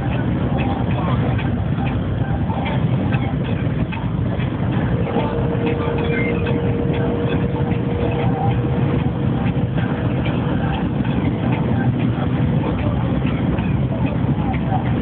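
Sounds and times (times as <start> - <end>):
faint steady whine: 0.0 - 15.0
vehicle engine and road rumble: 0.0 - 15.0.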